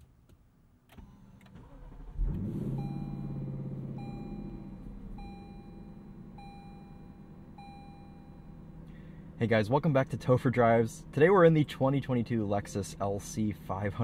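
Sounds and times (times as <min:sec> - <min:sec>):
car engine starting and idling: 0:00.3 - 0:14.0
beeping chime: 0:02.8 - 0:08.6.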